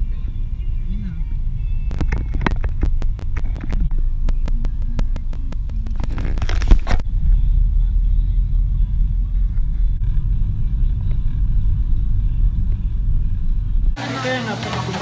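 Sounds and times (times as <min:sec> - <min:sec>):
van engine and road rumble: 0:00.0 - 0:15.0
sharp clicks and knocks: 0:01.9 - 0:07.0.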